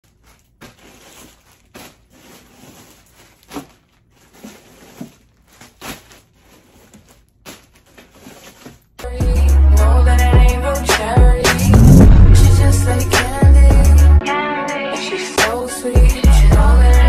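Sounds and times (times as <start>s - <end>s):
plastic bags crinkling: 0.0s - 9.0s.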